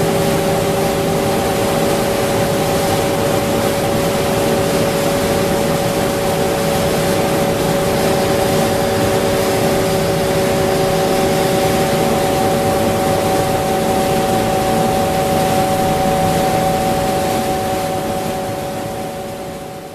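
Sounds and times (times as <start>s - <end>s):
film winder machine hiss and hum: 0.0s - 19.8s.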